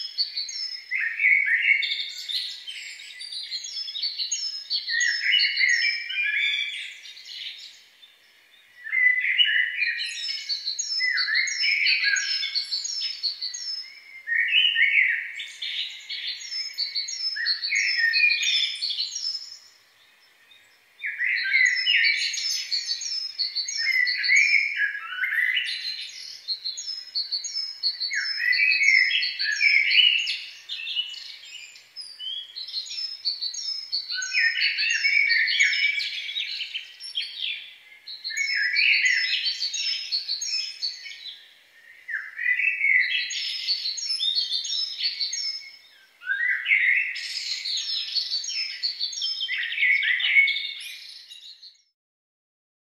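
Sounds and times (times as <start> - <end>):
high repeated bird chirps: 42.1 - 51.9.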